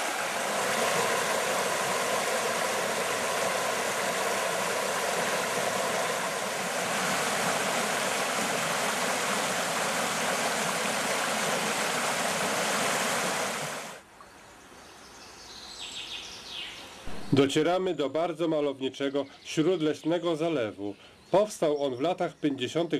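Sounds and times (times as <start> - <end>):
river rushing over stones: 0.0 - 14.0.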